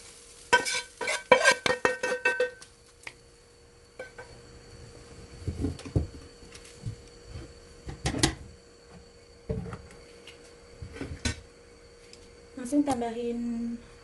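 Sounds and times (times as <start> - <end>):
cooking pot knocking and scraping: 0.5 - 2.6
pot clanking on stove: 0.5 - 2.6.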